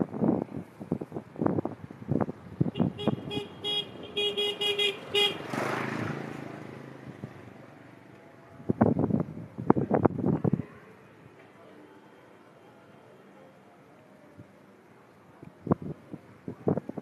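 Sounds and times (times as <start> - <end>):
vehicle horn toots: 2.8 - 5.6.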